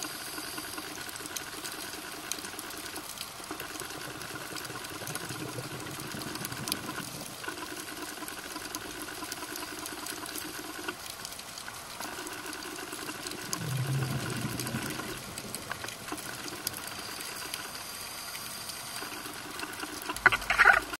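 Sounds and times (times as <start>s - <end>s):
underwater whirring hum: 0.0s - 20.9s
low rumble: 13.6s - 15.9s.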